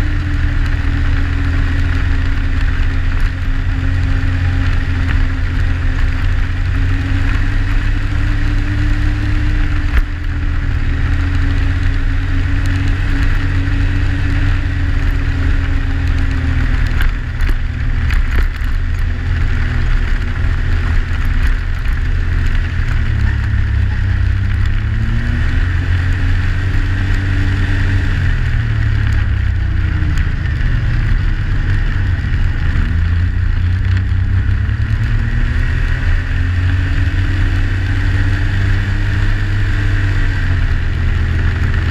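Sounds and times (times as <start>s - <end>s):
snowmobile engine running: 0.0s - 41.9s.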